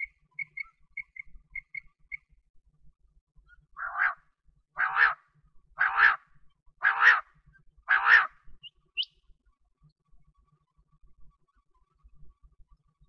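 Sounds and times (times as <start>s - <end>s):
quail calling: 3.8s - 4.2s, 4.8s - 7.3s, 7.9s - 8.4s.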